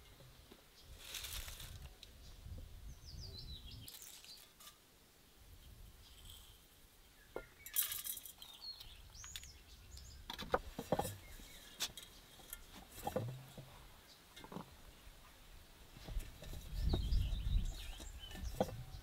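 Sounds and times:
peppercorns pattering into glass jar: 0:03.9 - 0:04.8.

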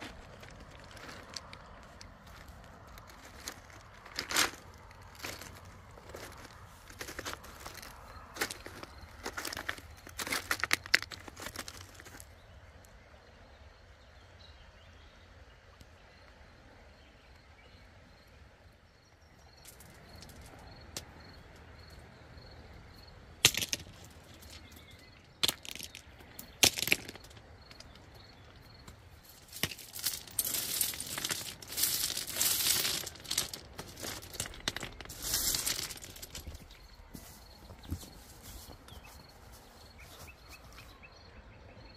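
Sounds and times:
pebbles crunching: 0:00.0 - 0:12.3, 0:23.4 - 0:40.6
river stones clacking: 0:00.0 - 0:12.3, 0:23.3 - 0:38.1.

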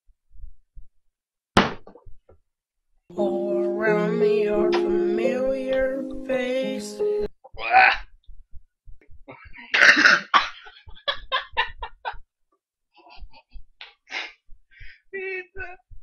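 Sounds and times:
person coughing: 0:09.8 - 0:10.6
person laughing: 0:10.4 - 0:12.2
breaths: 0:14.1 - 0:15.1.

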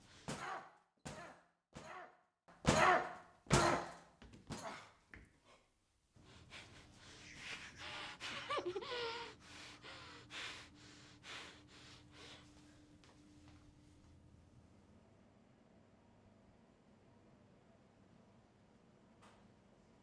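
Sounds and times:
woman gasping and breathing hard: 0:07.2 - 0:10.7.

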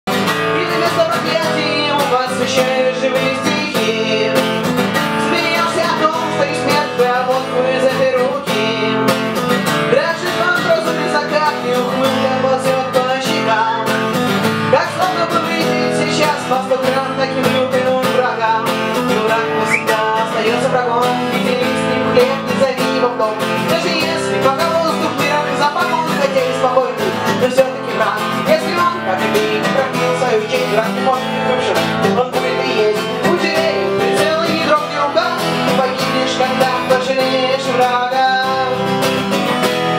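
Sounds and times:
strummed acoustic guitar: 0:00.1 - 0:39.9
woman singing: 0:14.7 - 0:38.9.

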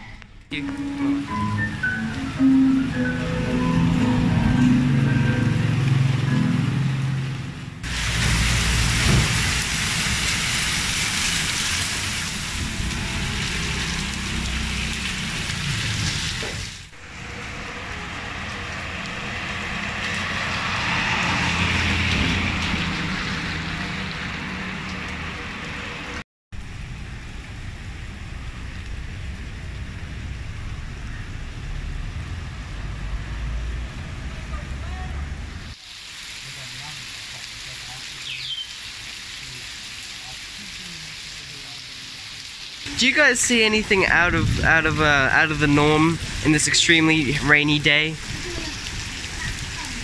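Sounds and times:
heavy rain falling on street: 0:00.5 - 0:50.0.

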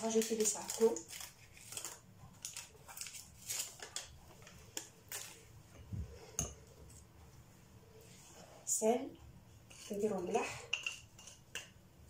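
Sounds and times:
spice sachet rustling: 0:00.0 - 0:05.5.

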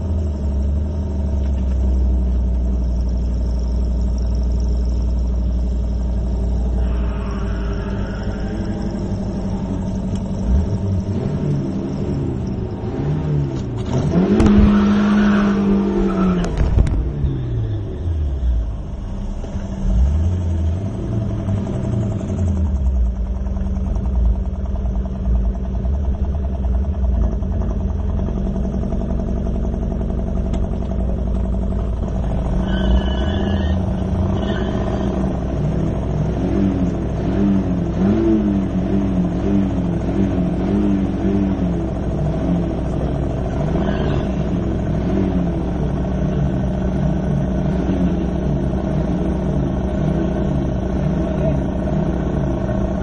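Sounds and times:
car engine rumbling: 0:00.0 - 0:53.0.

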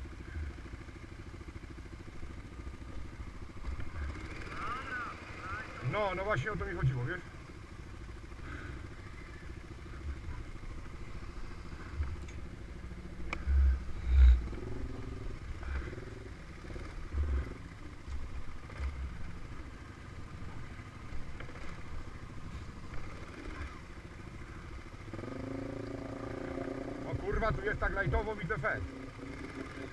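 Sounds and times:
quad bike engine running: 0:00.0 - 0:29.9.

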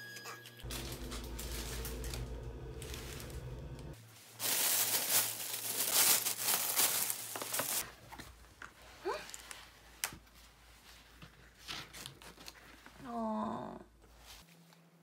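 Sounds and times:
low steady hum: 0:00.6 - 0:04.0
plastic bags crinkling: 0:00.6 - 0:07.9.

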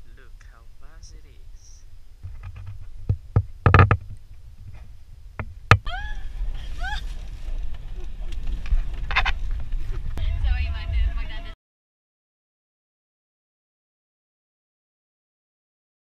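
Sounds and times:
wind rumble on microphone: 0:00.2 - 0:11.6
sharp knocks: 0:02.2 - 0:04.1
off-road vehicle: 0:02.2 - 0:11.5.

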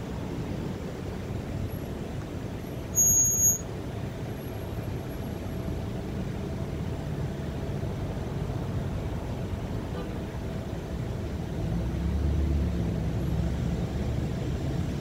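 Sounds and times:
slow road traffic rumble: 0:00.0 - 0:15.0
short high-pitched squeal: 0:03.0 - 0:03.7.

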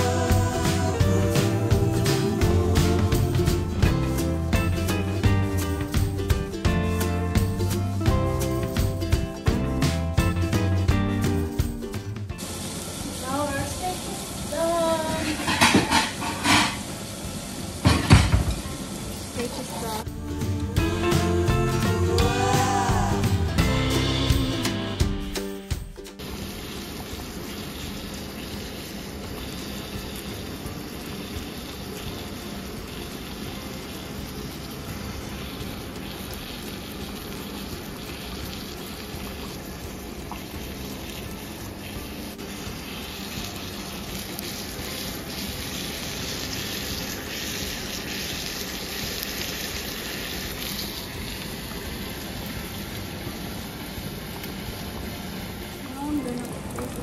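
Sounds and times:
steak sizzling in a frying pan: 0:00.0 - 0:57.0.

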